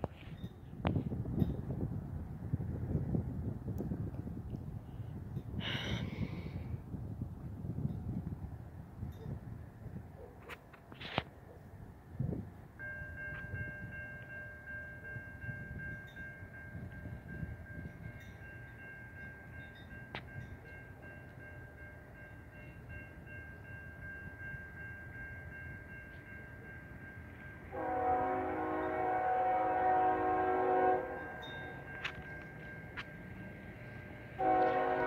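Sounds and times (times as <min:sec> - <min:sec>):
railroad crossing bell ringing: 0:00.2 - 0:01.9, 0:09.0 - 0:09.6, 0:12.5 - 0:35.0
train horn: 0:27.7 - 0:31.6, 0:34.3 - 0:35.0.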